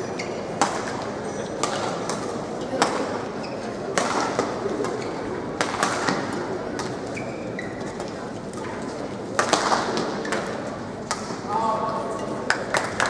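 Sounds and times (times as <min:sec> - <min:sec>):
large hall noise: 0:00.0 - 0:13.0
racket hitting shuttlecock: 0:00.6 - 0:01.0, 0:01.6 - 0:03.1, 0:04.0 - 0:05.0, 0:05.6 - 0:07.0, 0:09.4 - 0:11.4
shoes squeaking on court: 0:03.3 - 0:03.9, 0:04.7 - 0:05.3, 0:06.8 - 0:08.2.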